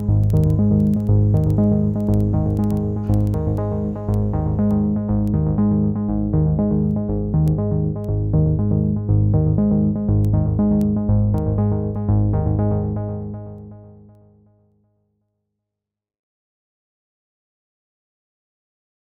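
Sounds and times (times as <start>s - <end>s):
synthesizer playing repeating notes: 0.0s - 13.7s.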